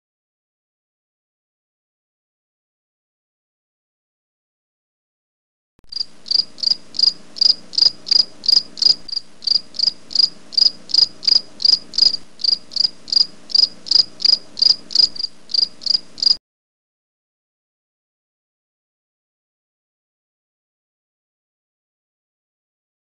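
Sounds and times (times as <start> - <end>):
cricket chirping: 5.9 - 16.4
faint low hum: 5.9 - 16.4.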